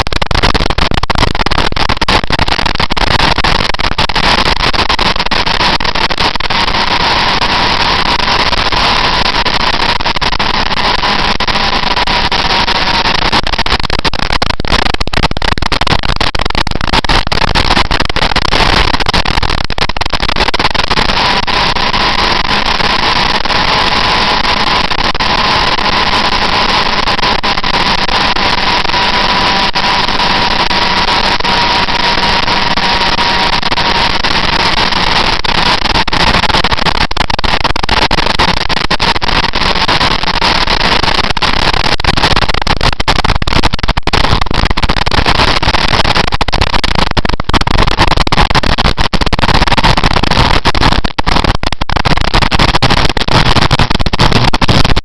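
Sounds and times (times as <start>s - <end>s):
motorcycle engine noise: 0.0s - 41.0s.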